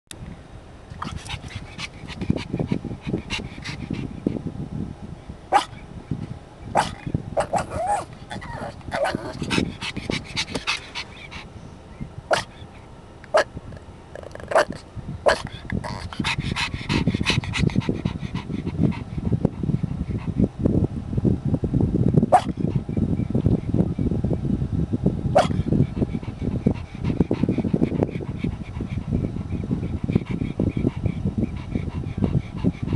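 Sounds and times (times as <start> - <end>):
puppy panting: 1.0 - 4.5, 7.4 - 11.5, 14.2 - 20.5, 25.4 - 32.9
puppy barking and yipping: 6.8 - 9.6.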